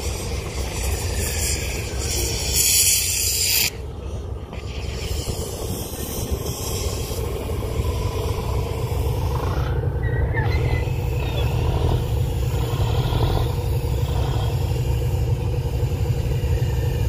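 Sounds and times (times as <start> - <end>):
loud hiss: 0.0 - 3.8, 4.5 - 9.7
diesel boat engine running: 0.0 - 17.0.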